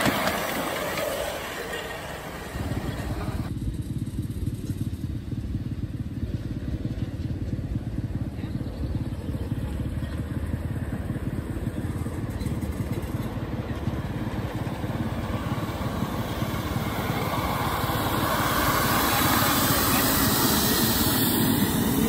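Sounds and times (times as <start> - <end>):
steam locomotive exhaust beats: 0.0 - 22.0
wheel clatter: 0.0 - 22.0
steam hiss: 17.4 - 22.0.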